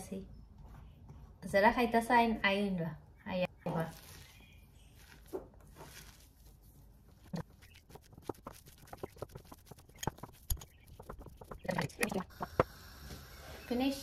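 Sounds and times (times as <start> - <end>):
fingers squishing potato: 3.7 - 12.3.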